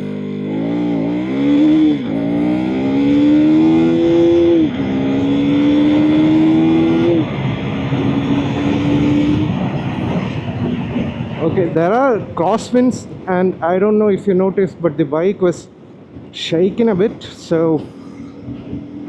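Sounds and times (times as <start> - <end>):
motorcycle engine accelerating: 0.0 - 11.5
wind noise on microphone: 3.9 - 13.8, 15.8 - 19.0.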